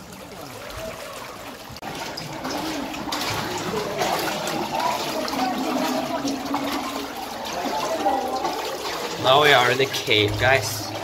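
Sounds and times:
water splashing around wading feet: 0.0 - 11.0.

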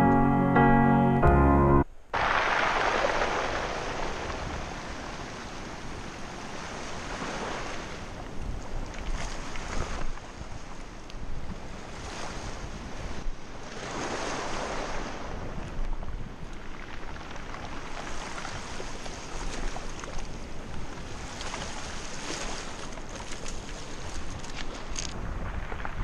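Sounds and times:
waves washing on pebble shore: 2.2 - 8.2, 16.2 - 26.0
wind buffeting microphone: 2.2 - 26.0.

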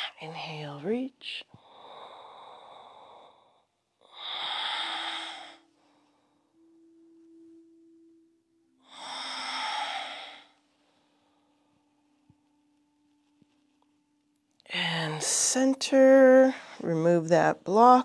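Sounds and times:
woman breathing deeply: 1.5 - 6.6, 8.8 - 11.9.

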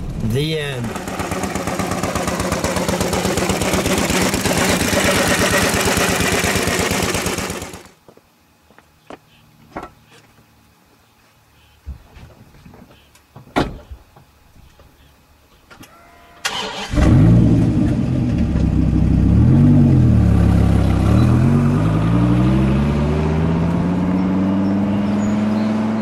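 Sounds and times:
sports car engine revving and accelerating: 17.0 - 26.0.

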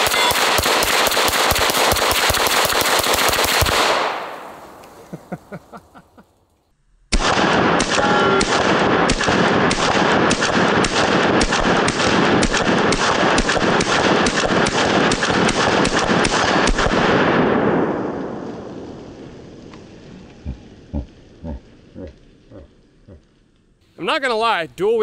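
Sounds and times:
pistol shots with echo: 0.0 - 4.6, 7.1 - 18.2.

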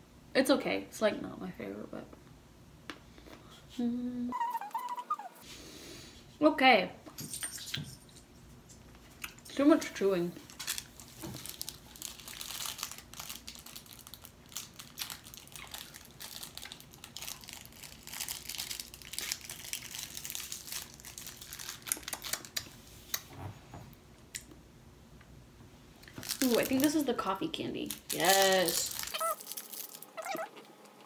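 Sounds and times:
candy wrapper crinkling: 10.4 - 22.8, 26.0 - 30.7.

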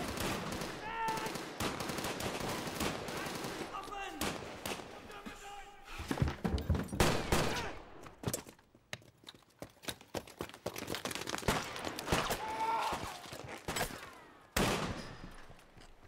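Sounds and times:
rifle and pistol shots: 7.0 - 8.0, 14.6 - 15.3.

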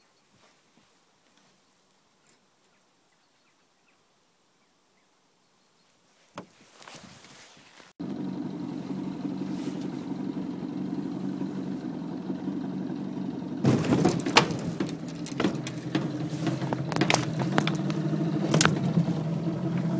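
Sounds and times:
motorboat engine running: 8.0 - 19.9
knocks and clatters in boat: 13.6 - 19.9.

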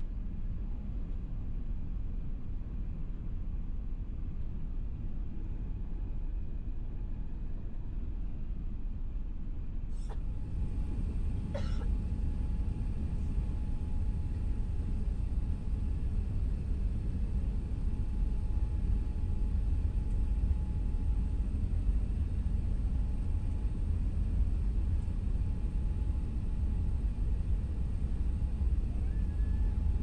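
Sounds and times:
airliner cabin rumble: 0.0 - 30.0
person coughing: 11.5 - 11.9.

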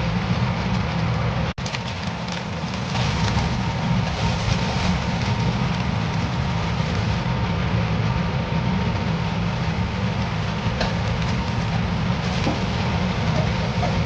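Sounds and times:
steady low rumble: 0.0 - 14.0
onion sizzling in hot oil: 1.6 - 14.0.

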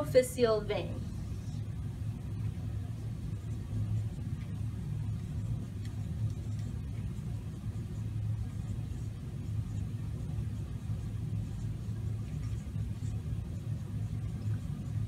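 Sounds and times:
low room rumble: 0.0 - 15.0
marker scratching on paper: 3.0 - 15.0.

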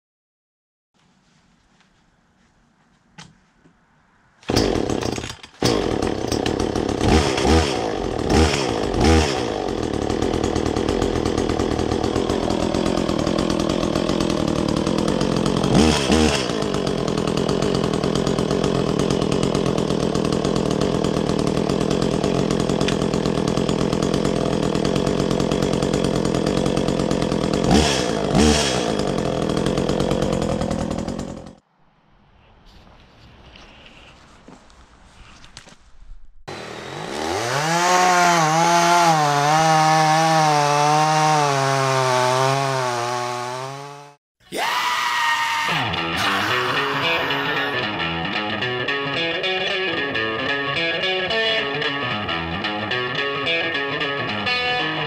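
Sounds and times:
chainsaw running and revving: 4.5 - 31.6, 36.5 - 44.2, 46.0 - 55.0.

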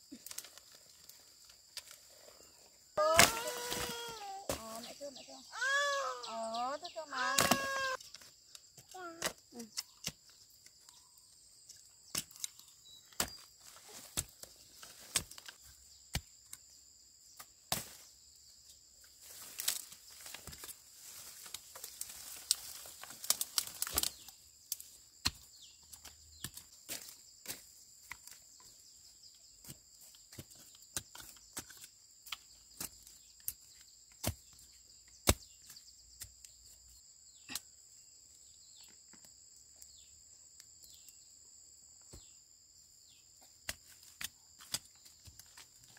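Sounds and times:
high-pitched insect chorus: 1.0 - 13.0.

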